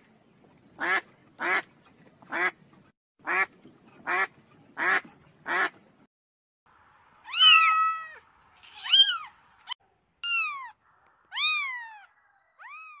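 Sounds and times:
cat meowing: 7.3s - 9.3s, 10.2s - 13.0s.

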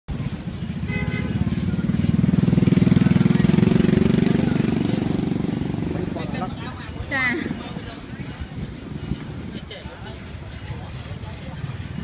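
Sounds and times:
motorbike engine running: 0.1s - 9.7s.

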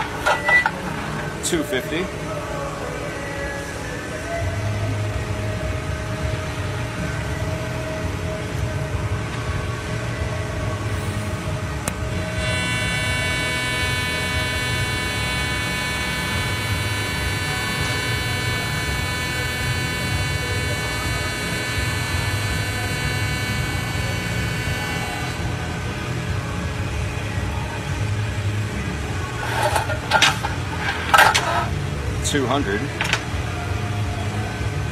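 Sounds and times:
welding arc buzzing: 0.0s - 1.6s, 11.0s - 25.9s, 28.9s - 32.1s.

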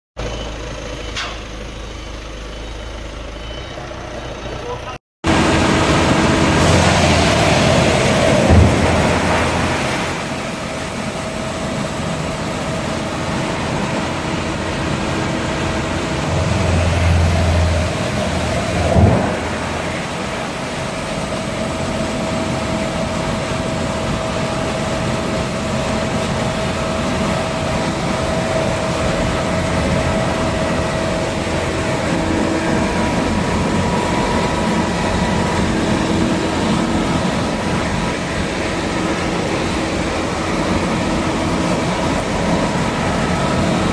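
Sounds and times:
wood chipper chipping wood: 5.3s - 43.9s
heavy low rumble: 13.3s - 21.3s.

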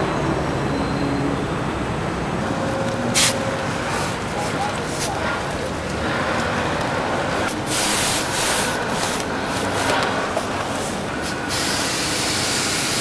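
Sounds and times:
steady hiss: 10.7s - 13.0s.

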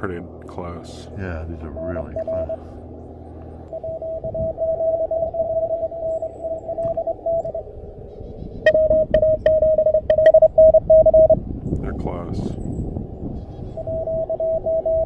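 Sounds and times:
morse code beeps: 1.6s - 2.7s, 3.6s - 7.6s, 8.6s - 11.4s, 13.8s - 15.0s.

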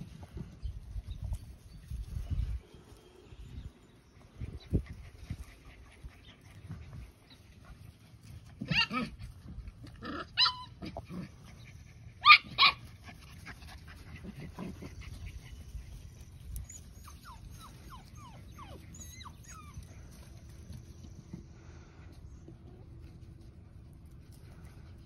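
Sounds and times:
puppies yipping: 4.2s - 21.2s.

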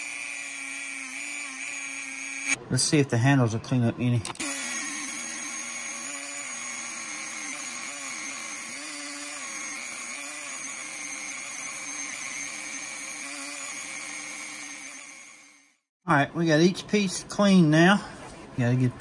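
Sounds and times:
rotary tool whining against metal: 0.0s - 2.6s, 4.3s - 15.8s.

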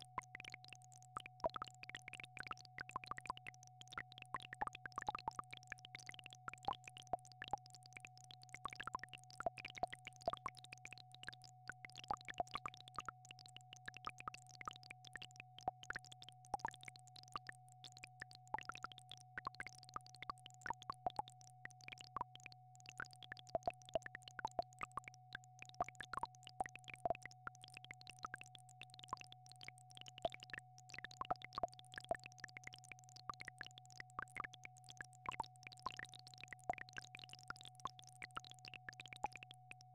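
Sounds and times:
short plinks and drips: 0.0s - 39.9s.

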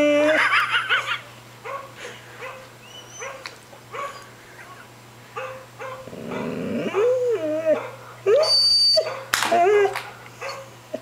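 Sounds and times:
dog barking: 1.6s - 4.3s, 5.4s - 6.6s, 7.7s - 8.0s, 9.0s - 9.3s, 10.4s - 10.7s.

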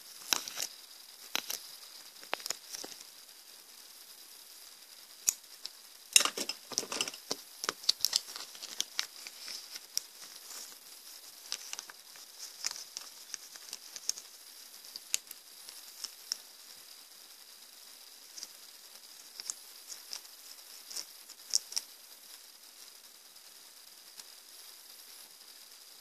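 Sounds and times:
plastic bag crinkling: 6.2s - 10.8s, 11.4s - 14.2s.

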